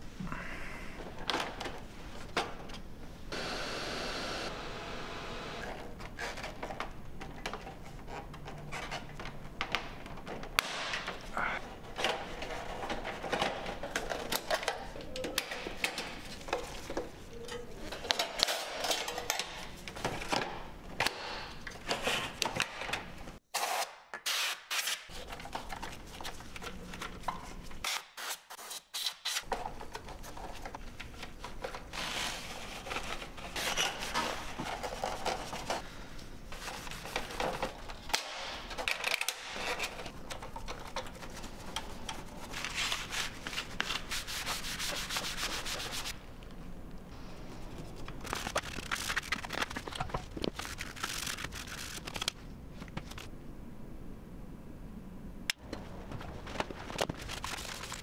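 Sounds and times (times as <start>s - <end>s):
screwdriver on metal and plastic parts: 38.8s - 42.7s.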